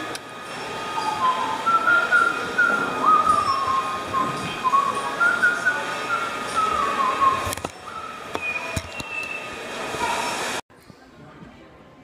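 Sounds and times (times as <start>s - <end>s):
person whistling a tune: 1.0s - 9.5s.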